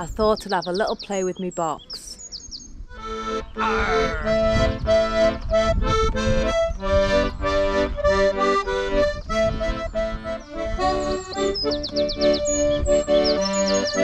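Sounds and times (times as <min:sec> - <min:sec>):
piano accordion playing: 0:02.9 - 0:14.0.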